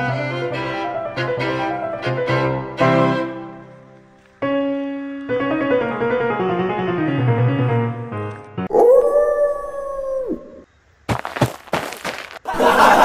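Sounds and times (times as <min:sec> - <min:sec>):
piano-like music with bass line: 0:00.0 - 0:08.7.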